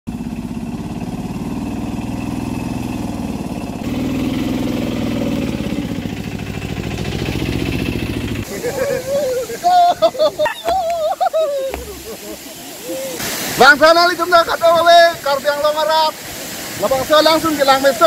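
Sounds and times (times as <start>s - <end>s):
auto-rickshaw engine running: 0.1s - 8.6s.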